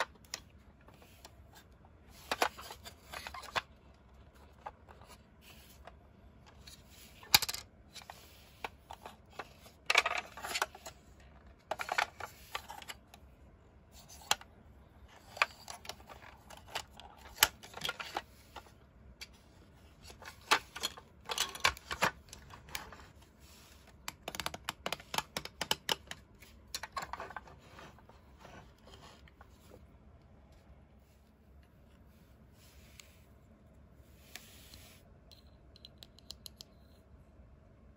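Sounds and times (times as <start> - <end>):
plastic toy parts clicking: 24.0 - 27.2, 34.7 - 36.7.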